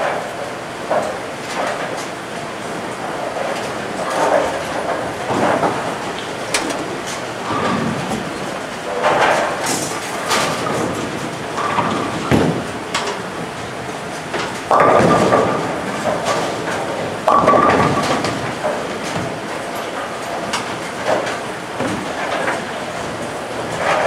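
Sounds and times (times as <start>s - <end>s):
clatter of balls and pins: 14.6s - 19.3s.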